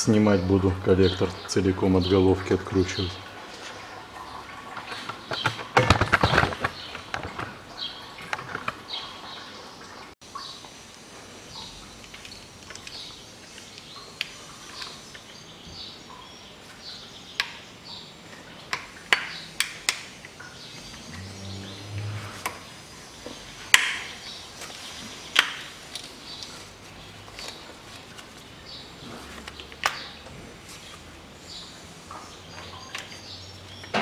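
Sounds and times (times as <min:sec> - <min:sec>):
low hum: 0:20.8 - 0:23.1.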